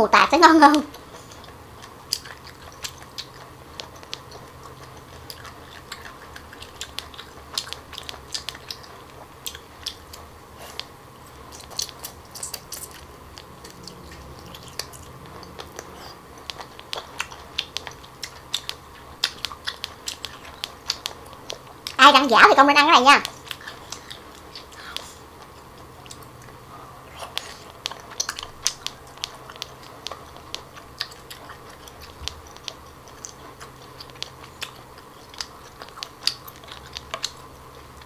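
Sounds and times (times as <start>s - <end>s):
close chewing and biting: 0.8s - 22.0s, 23.2s - 38.0s.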